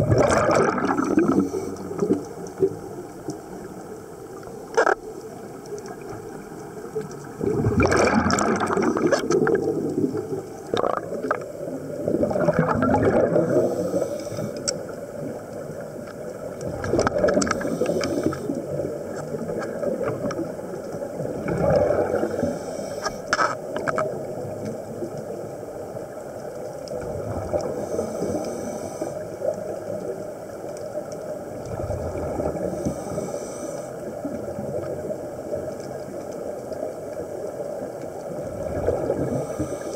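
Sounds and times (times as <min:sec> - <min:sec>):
low underwater rumble: 0:00.0 - 0:22.7
exhaled bubbles underwater: 0:00.0 - 0:39.9.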